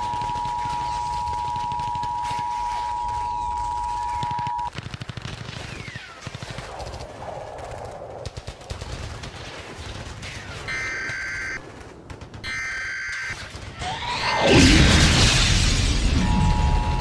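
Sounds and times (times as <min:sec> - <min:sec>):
machine-gun fire: 0:00.0 - 0:12.8
digital data tones screech: 0:12.6 - 0:17.0
two-tone attention signal: 0:16.2 - 0:17.0.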